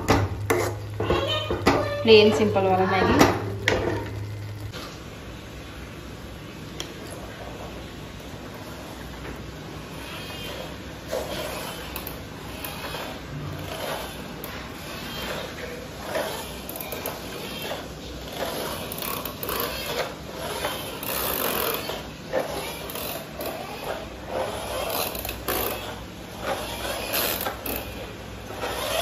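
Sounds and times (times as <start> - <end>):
toy car rattling on tiled floor: 10.0 - 29.0.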